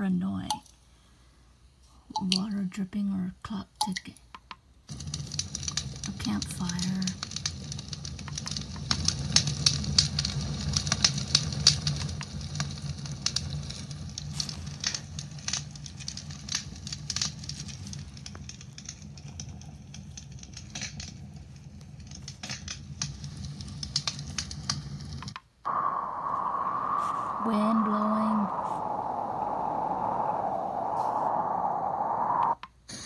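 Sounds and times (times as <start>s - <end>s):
campfire crackling and popping: 4.9s - 32.6s
low steady rumble: 25.7s - 32.6s.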